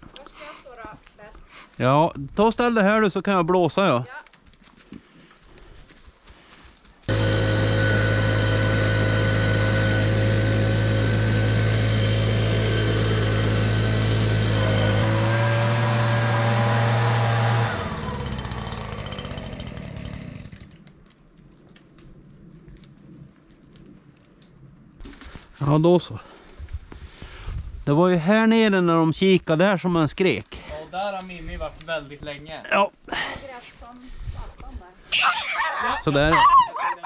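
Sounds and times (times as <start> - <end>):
leaf blower running: 7.0 - 20.8.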